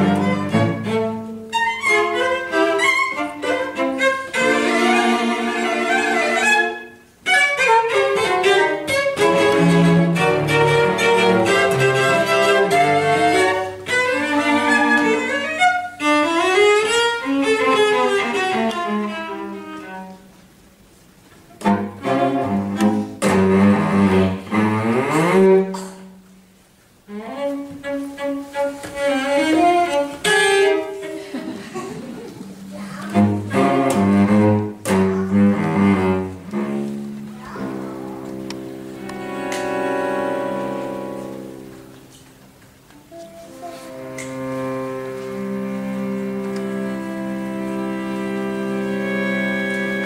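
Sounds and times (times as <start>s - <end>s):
cello ensemble playing: 0.0s - 50.0s.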